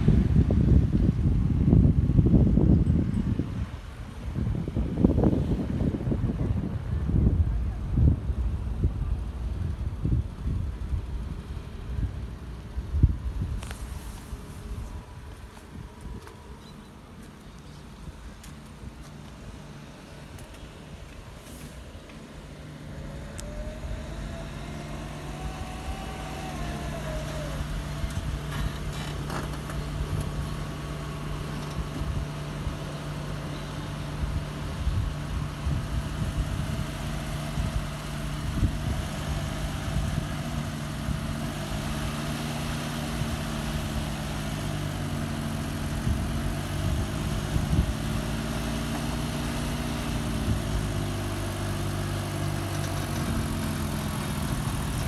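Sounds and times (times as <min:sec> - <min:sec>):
car engine revving: 0:22.4 - 0:34.8.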